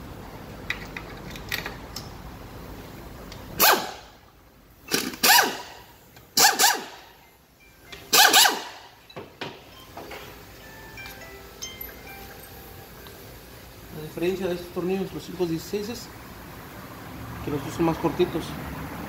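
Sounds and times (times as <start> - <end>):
compressed air blasts: 3.6 - 4.2, 4.8 - 7.1, 8.1 - 8.9.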